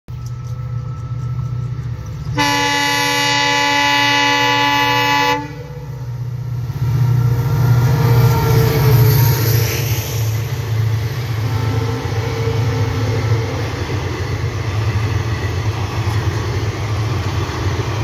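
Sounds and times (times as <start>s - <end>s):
locomotive engine rumble: 0.1s - 18.0s
train passing: 0.1s - 18.0s
train horn blast: 2.3s - 6.1s.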